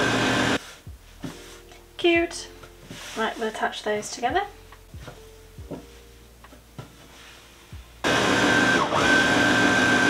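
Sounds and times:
fabric rustling and tapping: 0:00.6 - 0:07.9.

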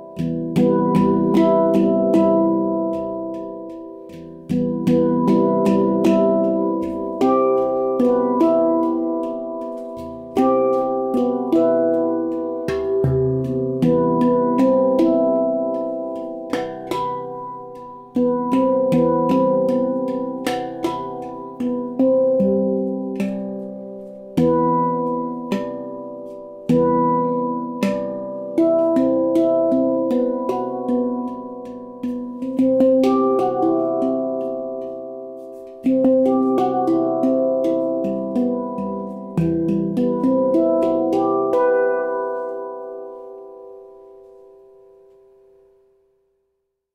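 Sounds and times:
deep low handpan note: 0:00.0 - 0:45.3
handpan notes ringing: 0:00.0 - 0:45.9.

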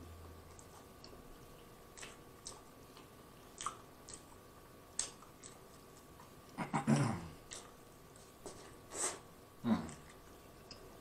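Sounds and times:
wet chewing mouth clicks: 0:01.9 - 0:06.4, 0:07.4 - 0:08.2.

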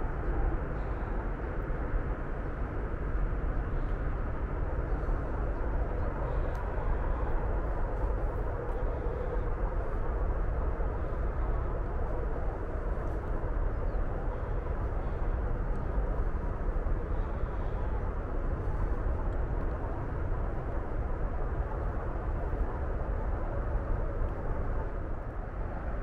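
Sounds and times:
highway traffic drone: 0:00.0 - 0:26.0.

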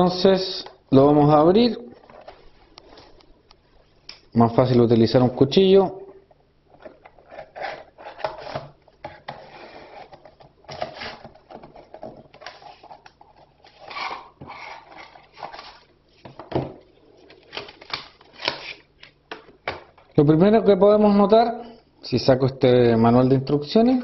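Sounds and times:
knife cutting cardboard and plastic: 0:06.8 - 0:15.8.

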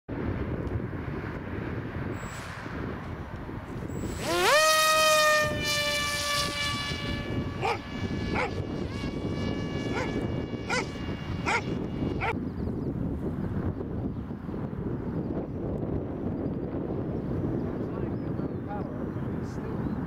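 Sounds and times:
electric motor propeller whine: 0:03.8 - 0:12.4.

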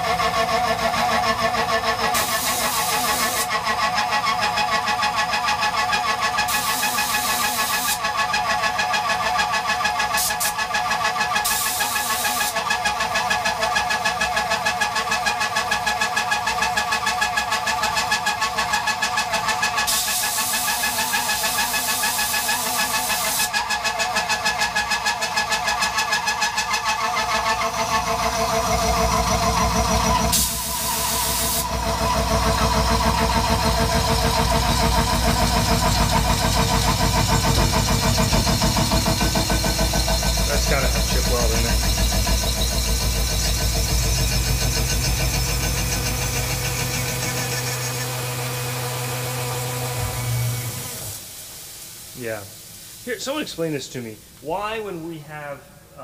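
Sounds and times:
compressed-air blow gun hiss: 0:51.1 - 0:54.2.

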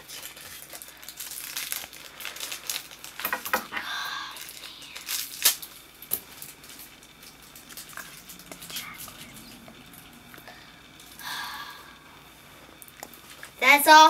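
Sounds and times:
sharp crackles and clicks: 0:00.0 - 0:03.6, 0:04.4 - 0:11.2
plastic packaging crinkling and tearing: 0:00.0 - 0:10.1.

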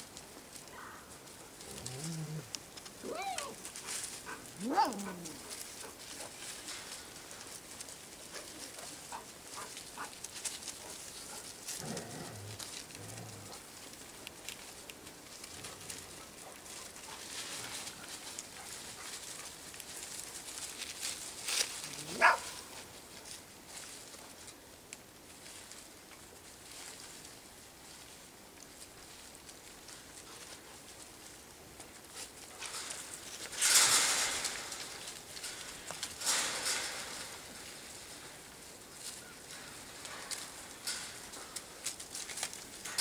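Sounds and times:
puppies rustling in dry leaves: 0:00.0 - 0:43.0
puppy yelp: 0:03.0 - 0:03.6, 0:04.6 - 0:05.4.

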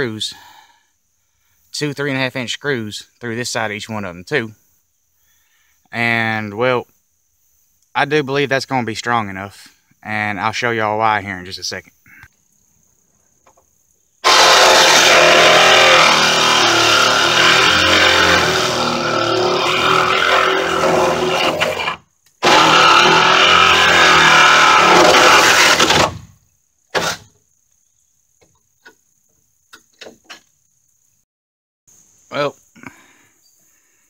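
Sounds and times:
power saw cutting wood: 0:14.2 - 0:26.2.

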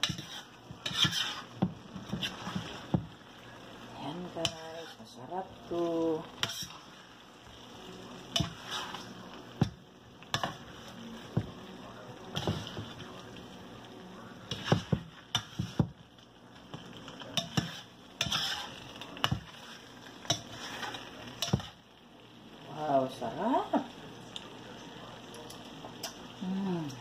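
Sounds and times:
metal spoon scraping a pan: 0:00.0 - 0:03.0, 0:04.4 - 0:05.3, 0:06.3 - 0:07.1, 0:08.3 - 0:09.3, 0:10.3 - 0:11.0, 0:14.4 - 0:15.9, 0:17.3 - 0:21.8
faint sizzle of frying food: 0:00.0 - 0:27.0.

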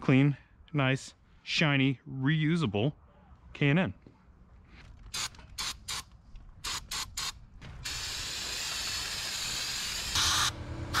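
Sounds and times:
aerosol spray spurts: 0:05.1 - 0:11.0
steady hiss of spray: 0:06.6 - 0:11.0.

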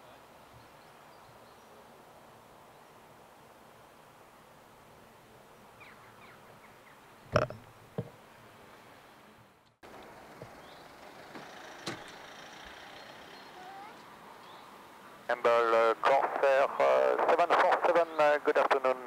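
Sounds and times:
sharp knocks: 0:07.3 - 0:08.2.

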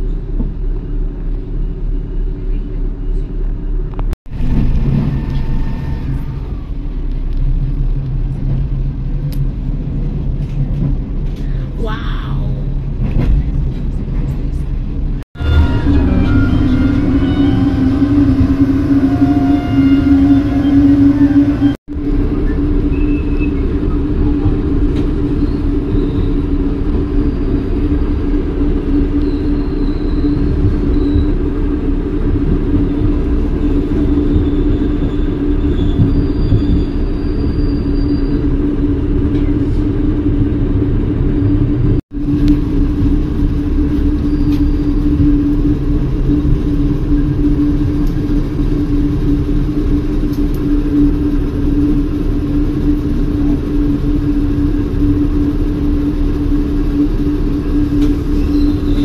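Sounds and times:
constant hum: 0:00.0 - 0:59.0
train wheels rumbling: 0:00.0 - 0:59.0
faint high squeals: 0:15.4 - 0:21.8.

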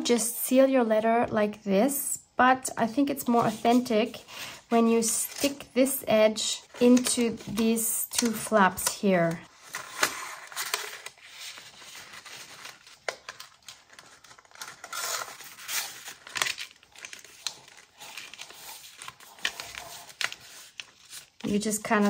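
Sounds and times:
paper rustling and crinkling: 0:06.7 - 0:22.0
sharp paper crackles: 0:06.8 - 0:22.0.

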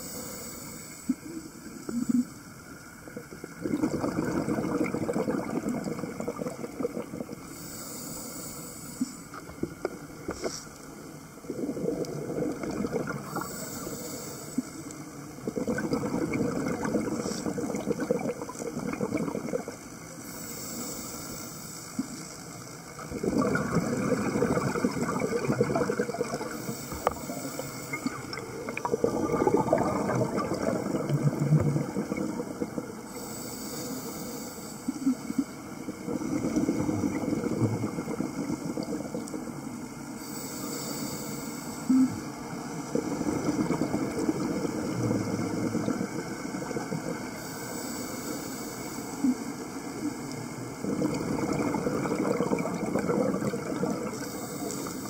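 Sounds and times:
regulator inhale hiss: 0:00.0 - 0:03.4, 0:07.4 - 0:11.3, 0:13.1 - 0:15.4, 0:20.0 - 0:23.1, 0:26.4 - 0:29.0, 0:32.5 - 0:36.9, 0:39.8 - 0:43.2, 0:44.6 - 0:50.8, 0:53.8 - 0:55.0
exhaled bubbles gurgling: 0:00.0 - 0:08.0, 0:11.2 - 0:21.2, 0:22.0 - 0:34.1, 0:34.8 - 0:41.2, 0:41.9 - 0:48.4, 0:49.2 - 0:55.0.

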